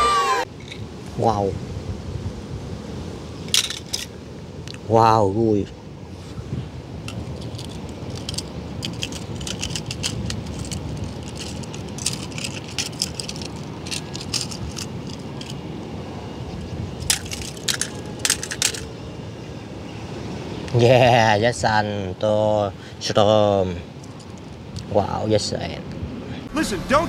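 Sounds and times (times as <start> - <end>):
toy cars clicking and clinking: 7.4 - 15.6, 17.1 - 18.9
toy cars clacking into plastic basket: 17.1 - 18.9.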